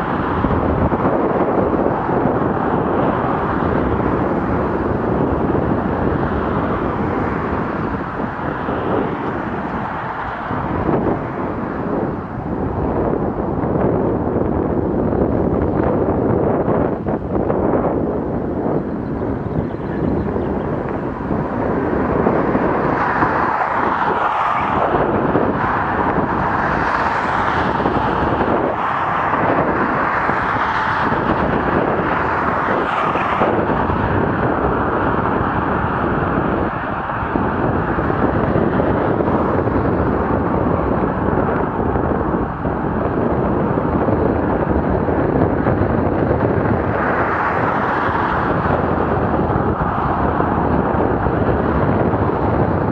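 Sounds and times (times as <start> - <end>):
passing car traffic: 0.0 - 52.9
wind on microphone: 0.0 - 52.9.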